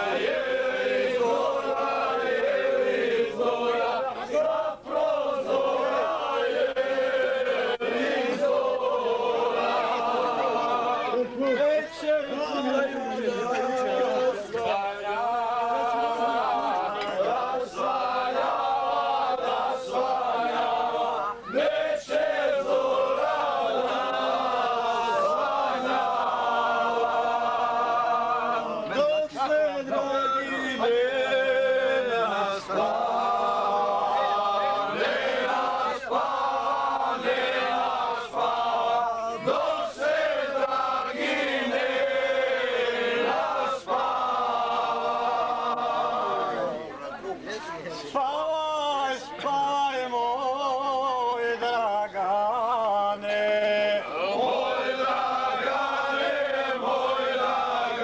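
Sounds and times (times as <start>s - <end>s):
men singing together: 0.0s - 46.6s, 48.2s - 58.0s.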